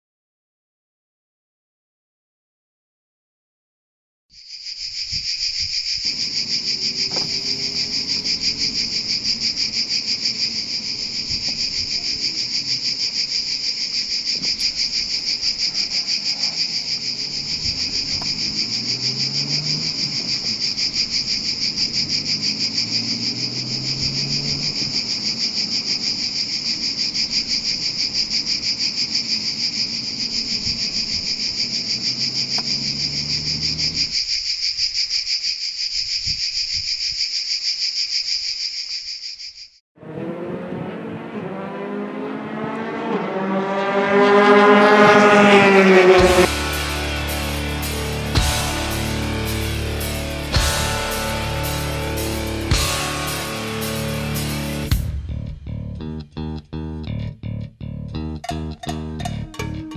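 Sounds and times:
cicadas buzzing: 4.3s - 39.8s, 43.4s - 54.9s
faint car engine: 6.1s - 34.2s, 40.0s - 59.9s.

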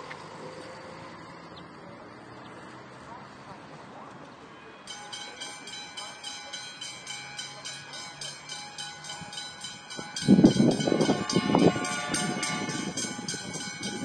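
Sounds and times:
level crossing warning bell: 4.4s - 14.0s.

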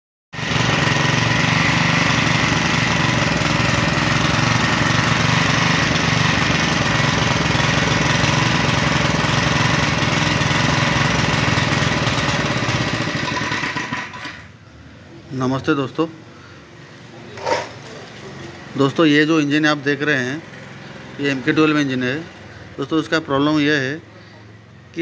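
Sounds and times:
water pump engine running: 0.4s - 14.4s.

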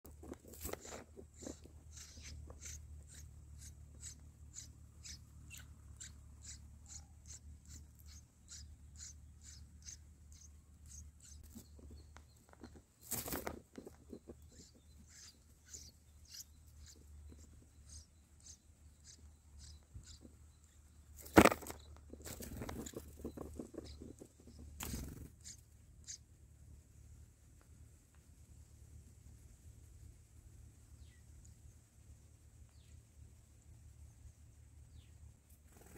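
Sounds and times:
nestlings cheeping: 0.1s - 26.2s
low steady hum: 0.1s - 35.9s.

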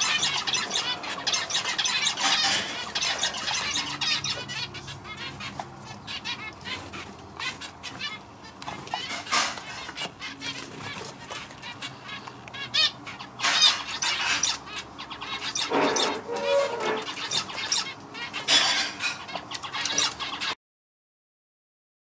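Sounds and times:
finch singing buzzy notes: 0.0s - 20.6s.

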